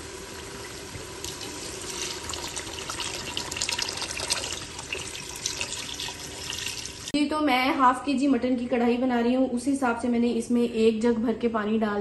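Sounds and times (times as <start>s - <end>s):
water pouring and splashing: 0.4s - 7.2s.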